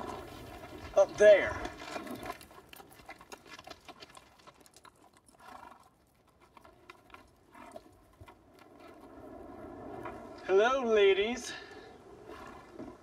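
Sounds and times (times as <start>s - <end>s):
horse hooves clopping: 0.0s - 10.5s.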